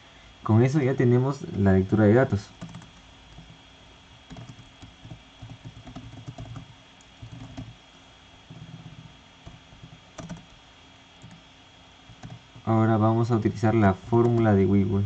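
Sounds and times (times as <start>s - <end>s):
computer keyboard typing: 2.6s - 3.6s, 4.3s - 7.8s, 8.5s - 10.6s, 11.2s - 11.4s, 12.1s - 12.7s, 14.2s - 14.6s.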